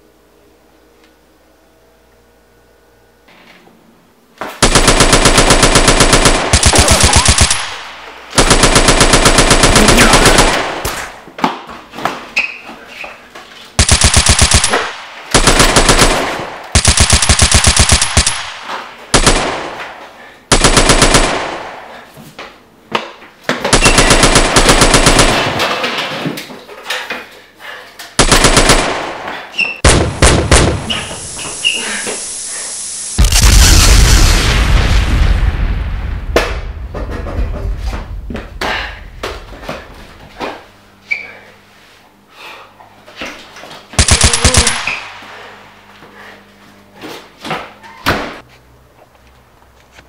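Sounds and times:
machine-gun bursts: 4.6 - 11.2, 13.8 - 19.8, 20.5 - 21.7, 23.7 - 25.9, 28.2 - 29.2, 44.0 - 45.2.

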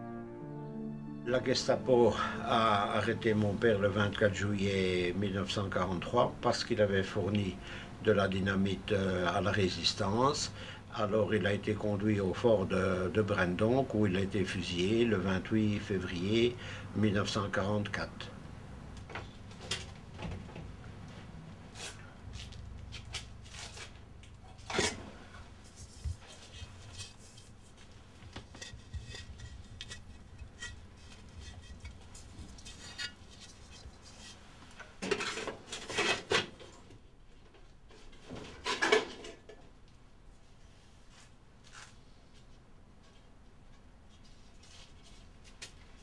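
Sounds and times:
objects clattering: 23.1 - 37.0, 38.0 - 39.7.

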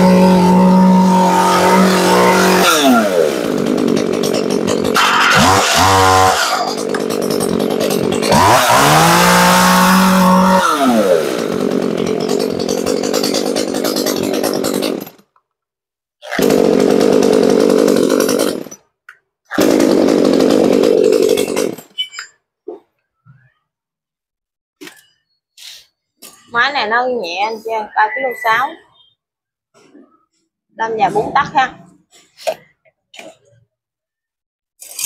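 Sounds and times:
chainsaw engine revving: 0.0 - 15.1, 16.2 - 18.8, 19.5 - 21.8.

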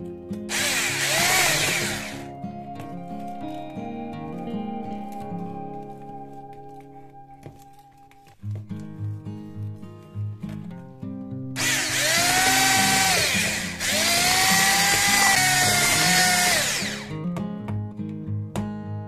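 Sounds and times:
soft acoustic guitar music: 0.0 - 1.0, 1.9 - 11.6, 17.0 - 19.0
electric hand mixer whirring: 0.5 - 2.3, 11.6 - 17.2.

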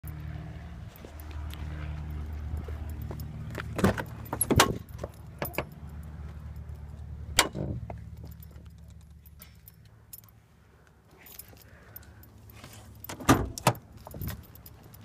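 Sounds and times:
car door unlatching and opening: 13.1 - 14.4.

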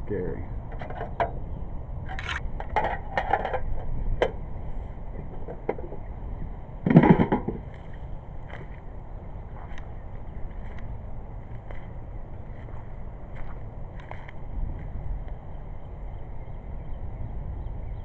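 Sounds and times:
knocks and scrapes handling hull: 6.8 - 7.6.

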